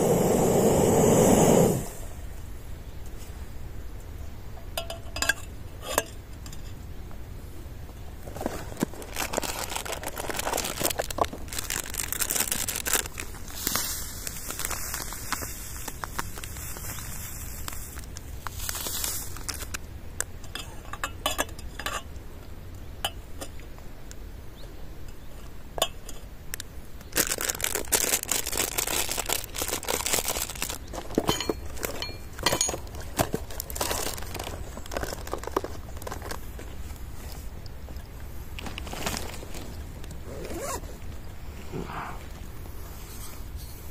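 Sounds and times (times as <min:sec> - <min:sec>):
camp cookware clinking: 0:04.5 - 0:06.8, 0:20.2 - 0:23.8, 0:25.0 - 0:26.6, 0:30.4 - 0:36.4, 0:39.0 - 0:40.8
crinkling and rustling: 0:08.0 - 0:22.0, 0:25.4 - 0:43.9.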